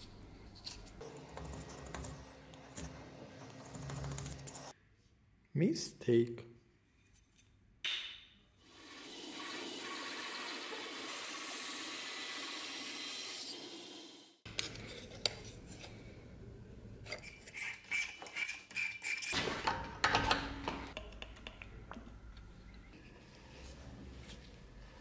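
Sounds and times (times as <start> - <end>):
bench saw cutting wood: 8.7 - 14.4.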